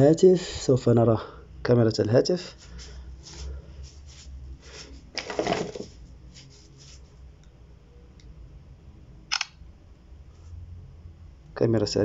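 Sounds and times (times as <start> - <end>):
phone handling rustle: 5.2 - 6.0
camera shutter click: 9.3 - 9.6.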